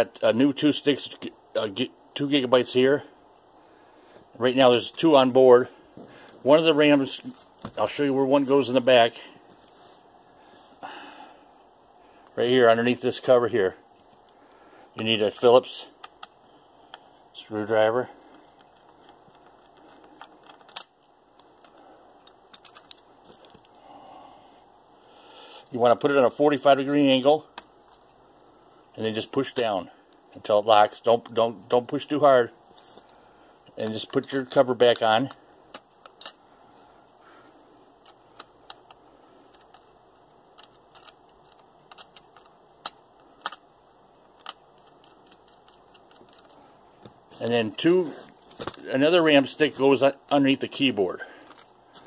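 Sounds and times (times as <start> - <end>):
screwdriver clicking and scraping: 38.0 - 43.6, 44.4 - 46.6
screwdriver clicks and taps: 40.6 - 43.6.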